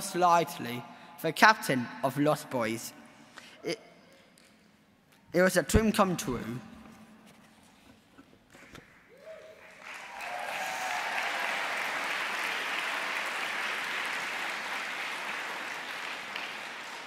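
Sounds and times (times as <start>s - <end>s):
audience applauding: 9.1s - 17.0s.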